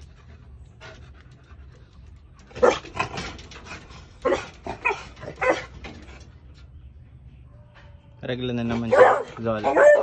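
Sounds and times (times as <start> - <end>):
dog barking: 2.6 - 2.9, 4.2 - 5.7, 8.7 - 10.0.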